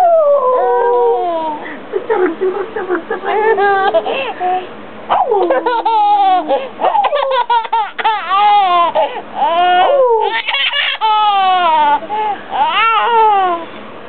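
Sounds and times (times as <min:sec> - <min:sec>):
infant laughing: 0:00.9 - 0:13.6
infant breathing: 0:04.0 - 0:04.7, 0:06.5 - 0:06.9, 0:08.9 - 0:09.9, 0:12.0 - 0:12.6.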